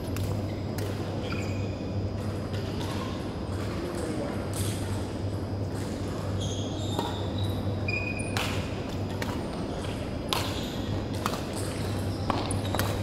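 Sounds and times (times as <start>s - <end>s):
steady low hum: 0.0s - 13.0s
shoes squeaking on court: 0.4s - 3.2s, 5.8s - 13.0s
racket striking shuttlecock: 8.3s - 9.4s, 10.3s - 13.0s.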